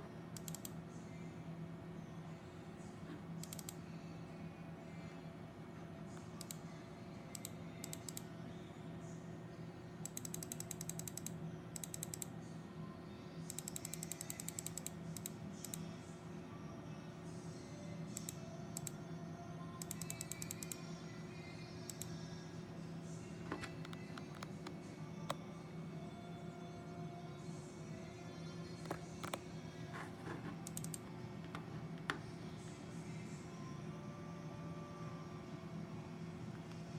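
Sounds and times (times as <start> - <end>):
steady low hum: 0.0 - 36.9
mouse and keyboard clicking: 0.4 - 0.7, 3.4 - 3.8, 30.3 - 32.2.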